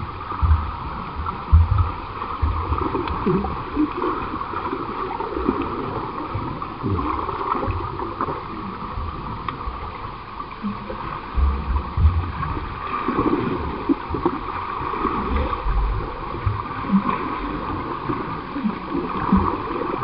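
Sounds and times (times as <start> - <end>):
low thumps from swimming strokes: 0.0 - 20.0
pool water churning and gurgling: 0.0 - 20.0.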